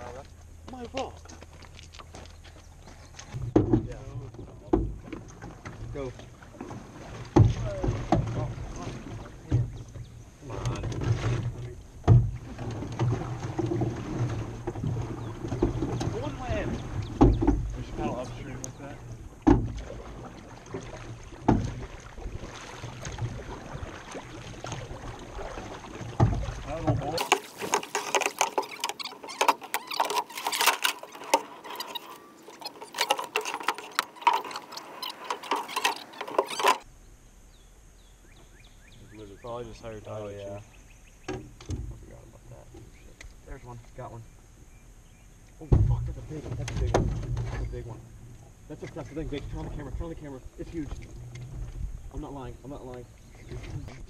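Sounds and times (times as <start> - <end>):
boat paddling: 0.0 - 36.9, 38.4 - 54.0
hard objects clattering: 27.2 - 36.8.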